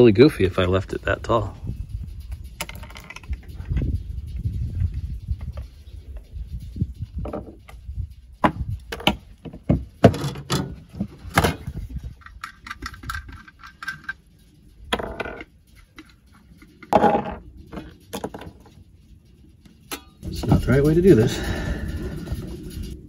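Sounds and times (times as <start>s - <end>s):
plastic pipe parts clicking and knocking: 8.4s - 14.2s, 14.9s - 18.8s.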